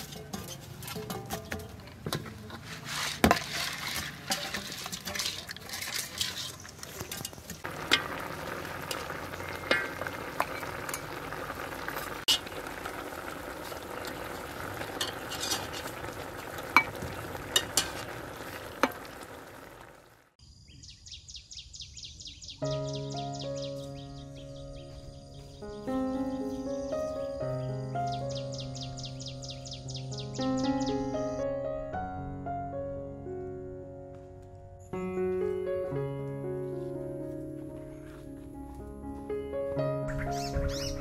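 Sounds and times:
fish sizzling and bubbling: 3.2s - 20.4s.

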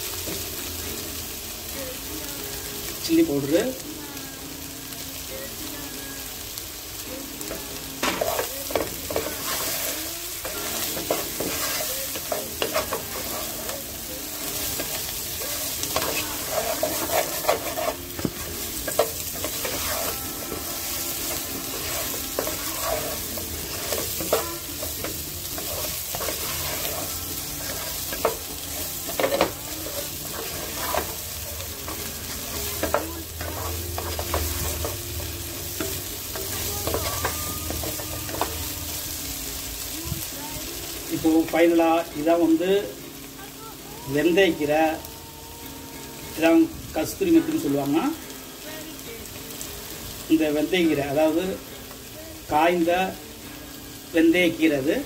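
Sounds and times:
potatoes sizzling in oil: 0.0s - 55.0s
spatula scraping pan: 8.0s - 38.9s.

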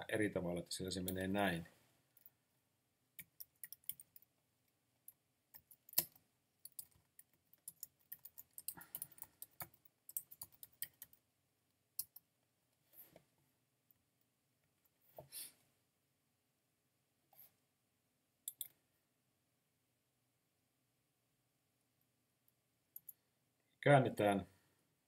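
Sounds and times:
typing on computer keyboard: 3.2s - 4.3s, 5.6s - 11.2s.

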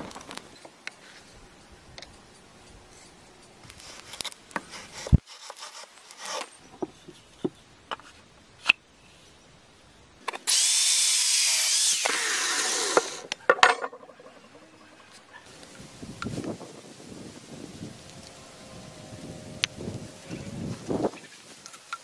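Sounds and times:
electric drill drilling steel: 10.5s - 13.3s.

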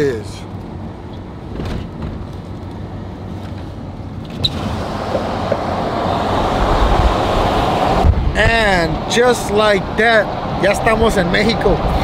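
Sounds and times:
truck engine and road rumble: 0.0s - 12.0s
wind rushing noise: 4.5s - 12.0s.

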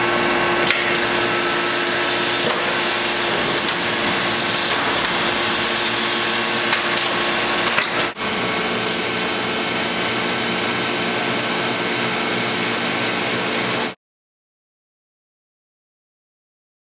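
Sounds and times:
pressing machinery humming: 0.0s - 11.9s.

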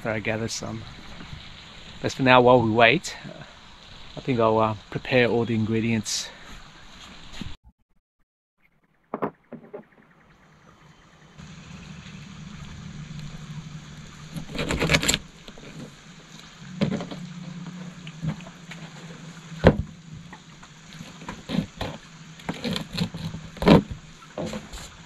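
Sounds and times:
steady low hum: 10.3s - 25.0s
knife sawing fish: 14.3s - 15.3s.

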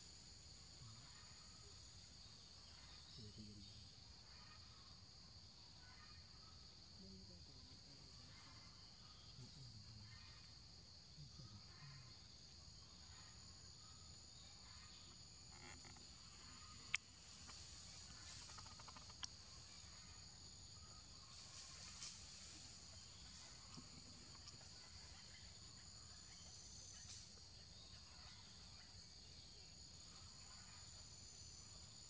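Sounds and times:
insects droning: 0.0s - 32.0s.

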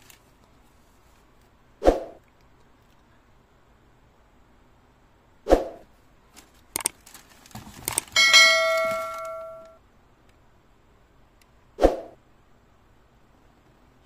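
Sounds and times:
short swoosh: 1.8s - 2.2s, 5.5s - 5.8s, 11.8s - 12.2s
bell ding: 8.2s - 9.8s.

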